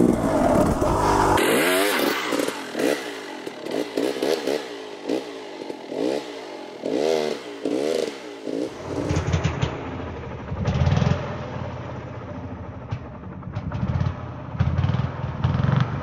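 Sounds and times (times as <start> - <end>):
dirt bike engine revving: 0.0 - 11.4.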